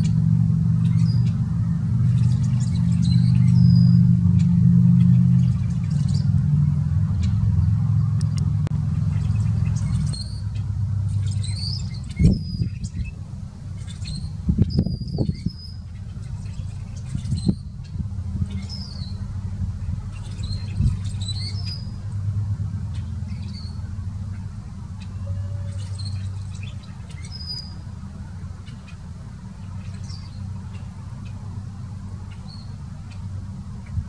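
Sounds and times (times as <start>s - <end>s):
low rumble: 0.0s - 26.9s
bird squeaky creaking calls: 2.1s - 4.5s, 9.1s - 13.2s, 23.0s - 27.8s.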